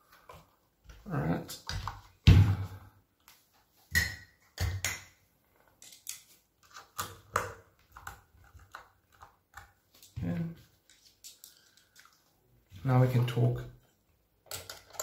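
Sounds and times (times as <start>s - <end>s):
hands handling rifle parts: 8.0s - 12.4s.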